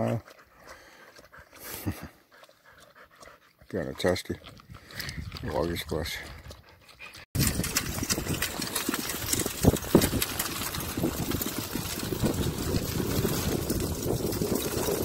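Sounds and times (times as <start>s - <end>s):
cart rattling over dirt track: 7.4s - 15.0s.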